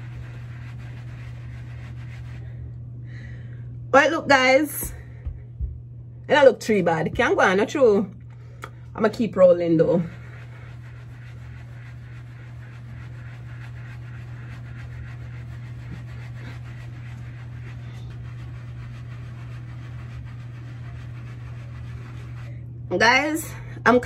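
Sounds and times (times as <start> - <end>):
sponge rubbing on hair: 0.0 - 2.6, 9.1 - 22.6
steady low hum: 0.0 - 24.0.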